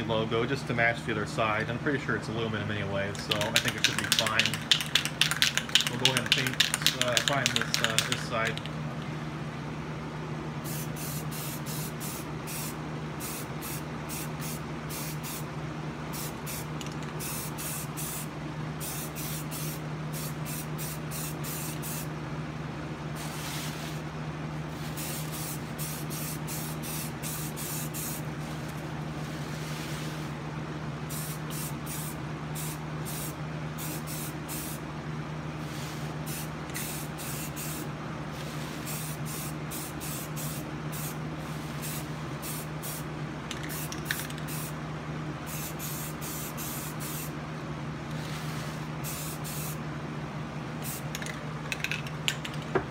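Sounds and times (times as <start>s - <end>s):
steady low hum: 0.0s - 52.9s
spray can hissing bursts: 10.7s - 15.4s, 16.2s - 22.1s, 24.8s - 28.2s, 31.1s - 34.8s, 35.7s - 37.8s, 38.5s - 41.2s, 41.8s - 44.7s, 45.5s - 47.3s, 48.2s - 49.8s, 50.8s - 51.1s.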